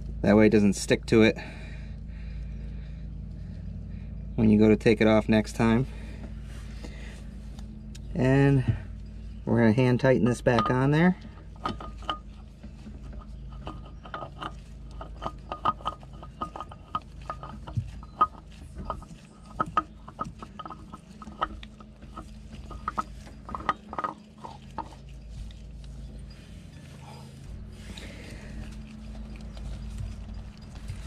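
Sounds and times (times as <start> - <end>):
low steady hum: 0.0 - 31.0
oil filter metallic clicks: 9.8 - 26.0.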